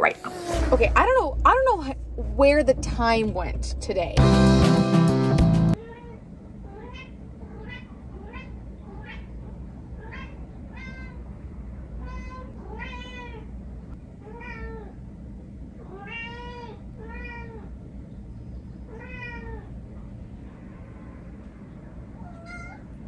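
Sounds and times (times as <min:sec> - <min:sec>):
cat meowing: 0:05.8 - 0:09.4, 0:10.0 - 0:11.2, 0:12.0 - 0:13.5, 0:14.2 - 0:15.0, 0:15.8 - 0:17.7, 0:18.9 - 0:19.7, 0:22.2 - 0:22.9.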